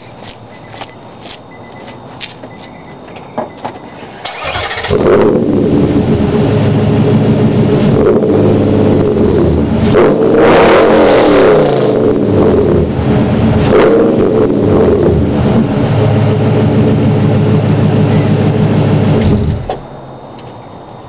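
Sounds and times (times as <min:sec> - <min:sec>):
engine cranking and starting: 0:04.0 - 0:05.1
engine revving: 0:04.2 - 0:19.8.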